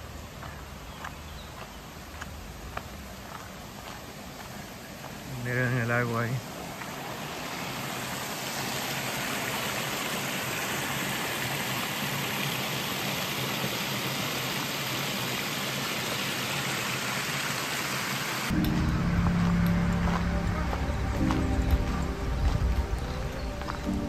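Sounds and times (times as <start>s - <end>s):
water rushing over weir: 4.9s - 24.0s.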